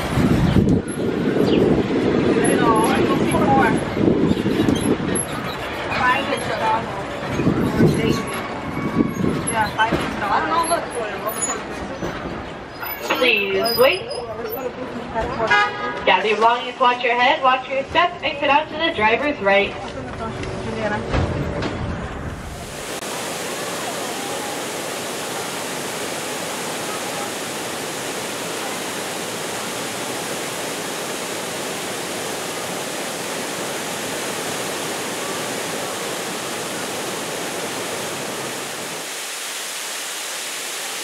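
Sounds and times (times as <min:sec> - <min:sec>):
waterfall rushing: 0:00.0 - 0:04.0, 0:22.4 - 0:41.0.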